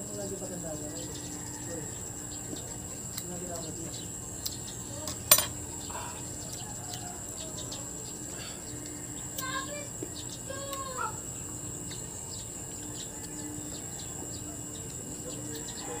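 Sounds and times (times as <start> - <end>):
high insect drone: 0.0 - 16.0
knife paring fruit ticks: 2.4 - 5.7, 6.4 - 7.7, 8.7 - 11.0, 14.7 - 15.8.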